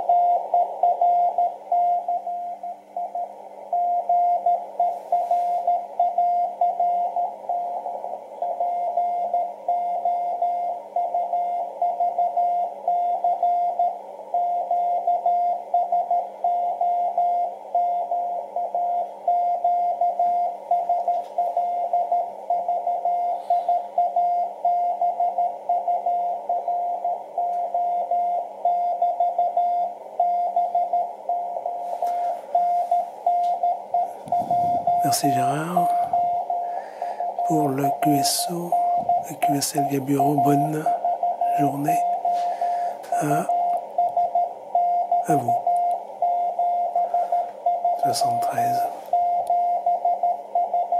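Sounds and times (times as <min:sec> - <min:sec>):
morse code tone: 0:03.8 - 0:07.9, 0:08.5 - 0:50.9
radio band noise hiss: 0:04.9 - 0:05.7, 0:34.1 - 0:43.6, 0:45.2 - 0:45.6, 0:47.0 - 0:49.1.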